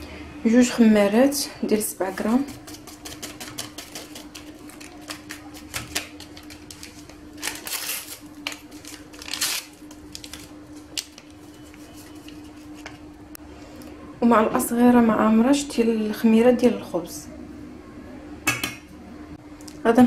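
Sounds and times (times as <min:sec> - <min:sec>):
faint steady hum: 0:00.0 - 0:20.0
paper sachets shaken over a bowl: 0:01.9 - 0:12.8.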